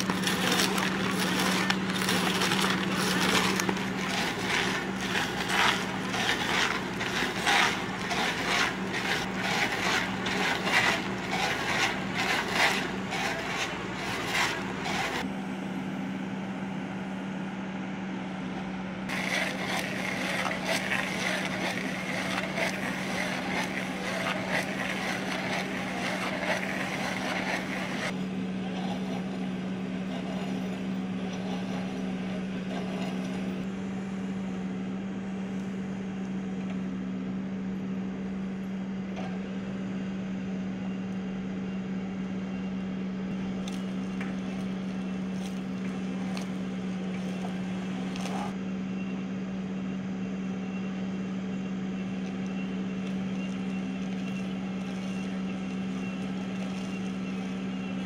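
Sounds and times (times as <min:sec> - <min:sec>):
stump crusher crackling and crunching: 0:00.0 - 0:15.3, 0:19.1 - 0:33.7, 0:43.4 - 0:48.6, 0:52.2 - 0:58.0
diesel engine running: 0:00.0 - 0:36.0, 0:43.2 - 0:49.0, 0:51.4 - 0:58.0.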